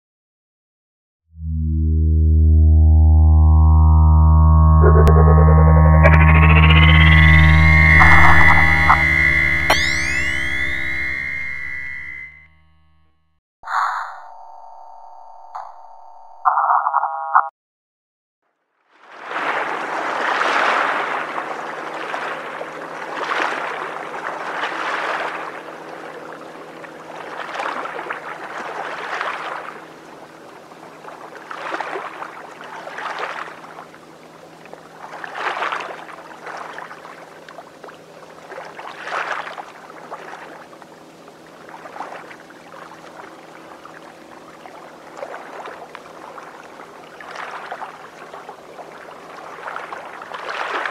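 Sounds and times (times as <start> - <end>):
short electronic chime: 1.4 - 13.1
river water lapping: 19.0 - 50.9.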